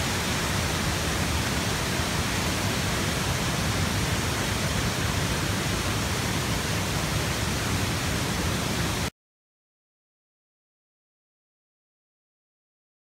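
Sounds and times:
floodwater rushing: 0.0s - 9.1s.

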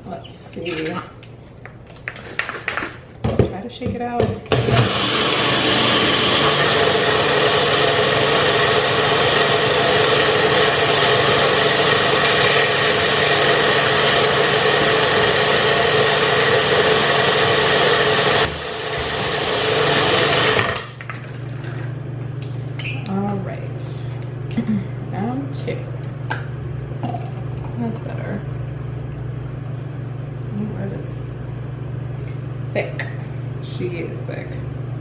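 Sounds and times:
blender motor whine: 4.5s - 21.0s.

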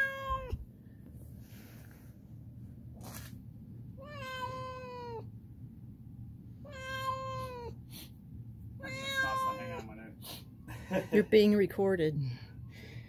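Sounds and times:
cat meowing: 0.0s - 0.6s, 4.0s - 5.3s, 6.6s - 7.8s, 8.8s - 9.9s.

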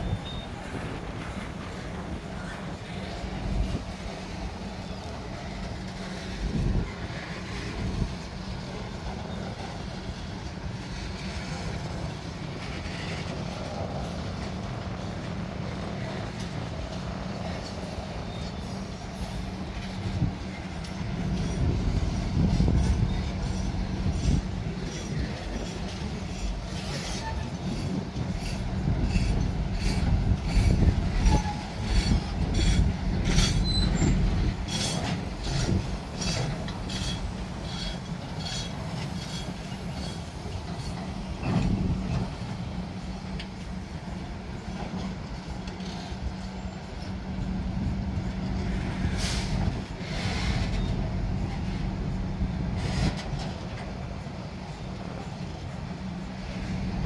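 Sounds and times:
wheel squeals: 0.0s - 0.8s, 22.4s - 42.2s
train clanks and clicks: 0.0s - 57.0s
train wheels rumbling on rail: 0.0s - 57.0s.

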